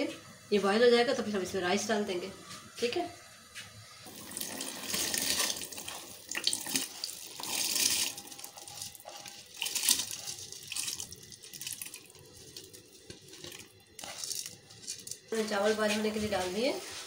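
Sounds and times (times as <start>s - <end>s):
rice poured into water splashing: 4.1s - 15.3s.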